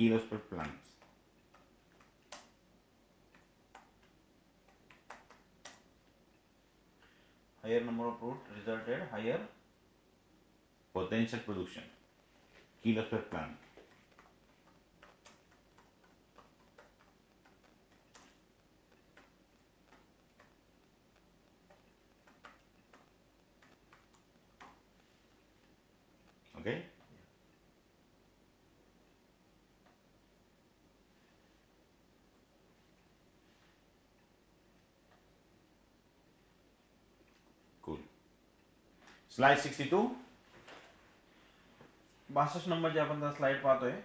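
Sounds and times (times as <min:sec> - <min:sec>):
low room hum: 0:00.0 - 0:44.0
laptop keys clicking: 0:00.6 - 0:02.6, 0:03.3 - 0:05.9, 0:13.8 - 0:24.8.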